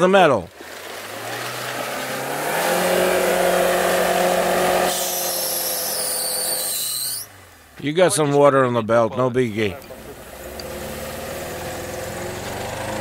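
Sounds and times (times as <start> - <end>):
car engine revving: 0.7 - 7.8, 9.7 - 13.0
drive belt squealing: 4.6 - 7.3.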